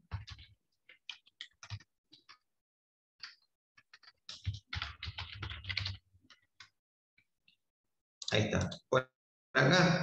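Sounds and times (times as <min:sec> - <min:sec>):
typing on a computer keyboard: 0:00.0 - 0:02.5, 0:03.2 - 0:06.8.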